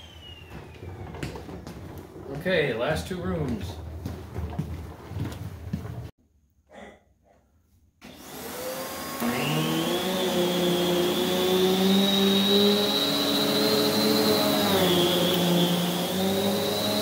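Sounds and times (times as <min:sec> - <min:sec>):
vacuum cleaner motor whine: 0:08.0 - 0:17.0.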